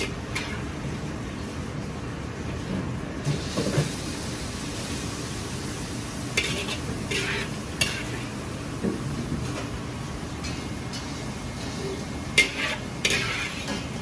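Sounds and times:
restaurant kitchen background noise: 0:00.0 - 0:14.0
metal ladle scraping a wok: 0:06.4 - 0:08.3, 0:12.4 - 0:14.0.

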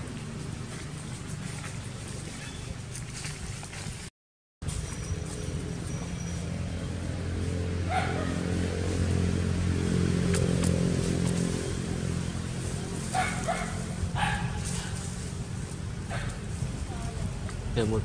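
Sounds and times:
motor engine humming: 0:04.6 - 0:17.7.

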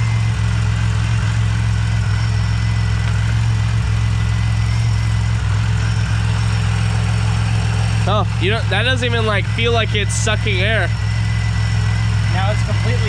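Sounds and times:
engine idling with rattle: 0:00.0 - 0:13.0.

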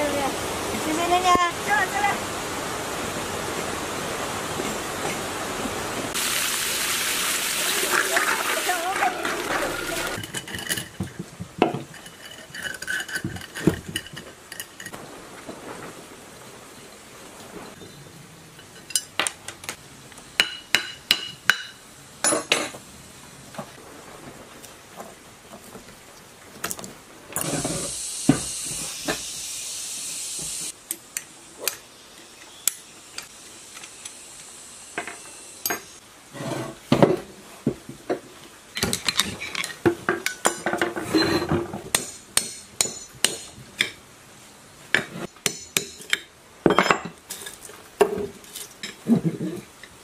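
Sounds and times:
steady hiss: 0:00.0 - 0:10.5, 0:14.4 - 0:40.8.

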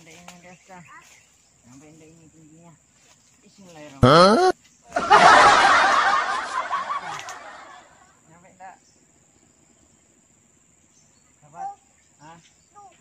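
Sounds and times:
leaves and branches rustling: 0:00.0 - 0:04.0.

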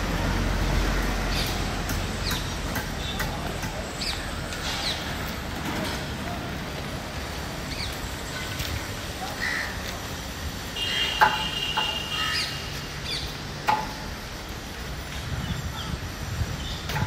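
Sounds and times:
street background noise: 0:00.0 - 0:17.0
sharp knocks: 0:13.7 - 0:14.0.

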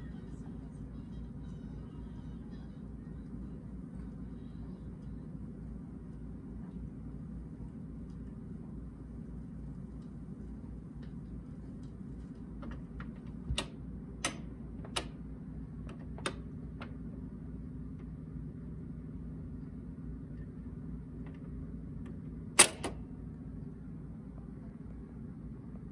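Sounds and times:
record changer humming: 0:00.0 - 0:25.9
record changer clicks: 0:11.8 - 0:17.1, 0:22.1 - 0:23.1.

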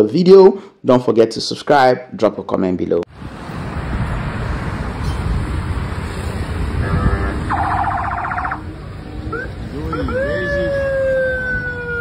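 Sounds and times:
vehicles driving past: 0:03.1 - 0:12.0
pulsing electronic siren: 0:07.5 - 0:12.0.

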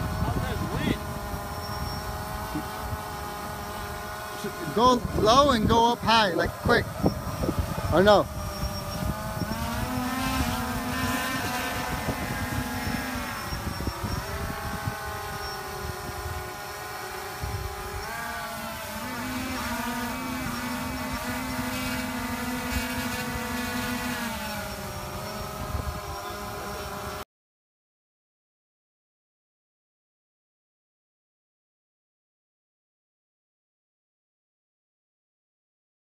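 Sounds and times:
drone propellers whining: 0:00.0 - 0:27.2.

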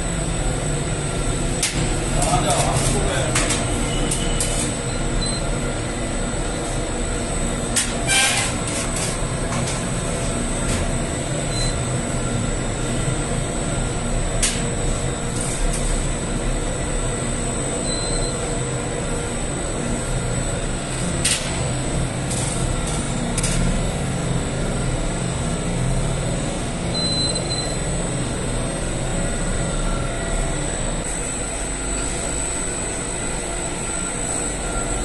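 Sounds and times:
flatbread machine mechanical rumble: 0:00.0 - 0:35.0
thin high whine: 0:26.4 - 0:35.0.

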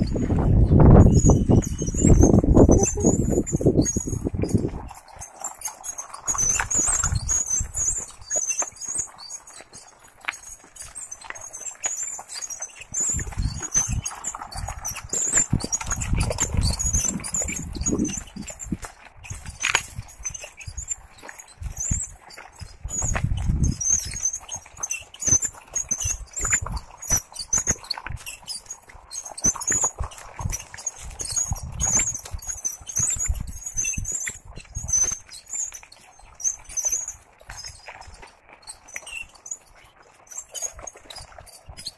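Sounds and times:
wind buffeting microphone: 0:00.0 - 0:05.2, 0:13.0 - 0:20.8, 0:21.5 - 0:24.8, 0:30.0 - 0:35.2
cart rattling on dirt path: 0:00.0 - 0:41.9
high squeaks: 0:00.9 - 0:37.9.

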